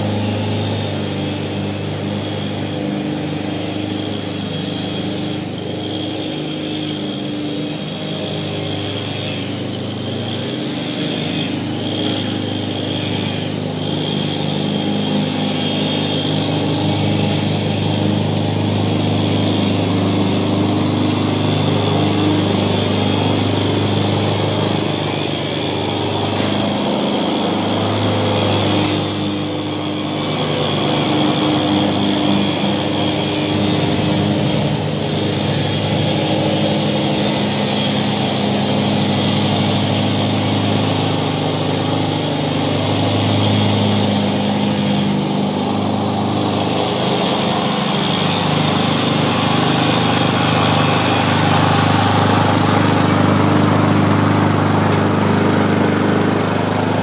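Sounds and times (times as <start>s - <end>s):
lawn mower engine cutting grass: 0.0s - 57.0s.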